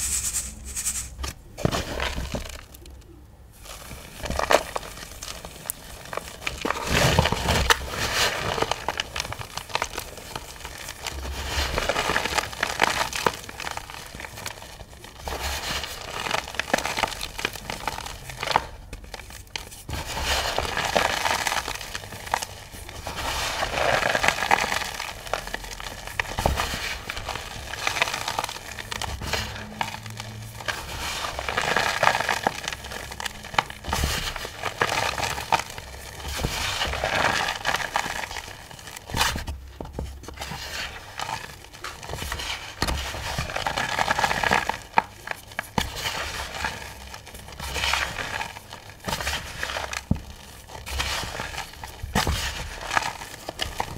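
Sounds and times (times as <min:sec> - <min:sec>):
chalk chunks crackling as crushed: 0:00.0 - 0:53.9.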